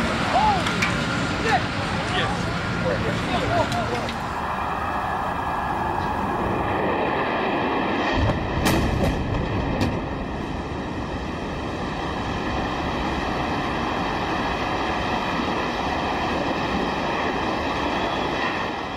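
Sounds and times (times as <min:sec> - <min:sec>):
loud steady roar: 0:00.0 - 0:18.9
explosion sharp crack: 0:08.0 - 0:10.2.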